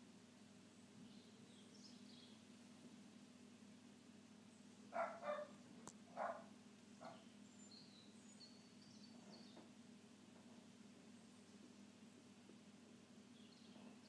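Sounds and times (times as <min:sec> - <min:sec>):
dog barking: 0:04.9 - 0:07.3
faint bird chirps: 0:07.0 - 0:09.7, 0:13.3 - 0:14.0.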